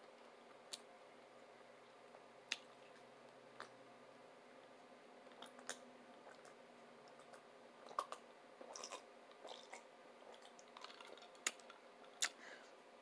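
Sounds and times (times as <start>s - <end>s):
chewing with wet mouth clicks: 2.5s - 3.8s, 5.3s - 12.4s.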